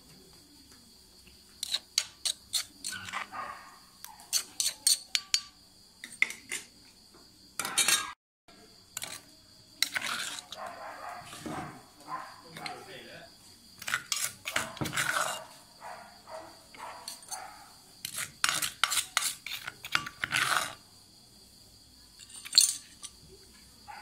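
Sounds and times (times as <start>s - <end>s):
crickets chirping: 0.0s - 24.0s
metal spoon scraping mortar: 1.6s - 3.4s, 4.2s - 6.7s, 9.0s - 9.2s, 9.8s - 11.6s, 13.8s - 15.6s, 17.0s - 17.4s, 18.0s - 20.8s, 22.2s - 23.2s.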